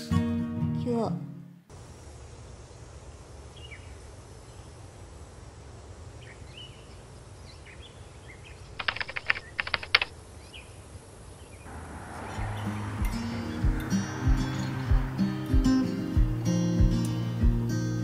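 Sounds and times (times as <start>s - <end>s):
small birds chirping: 1.8s - 18.0s
rapid clicking bursts: 8.8s - 10.1s
steady low rumble: 11.7s - 17.7s.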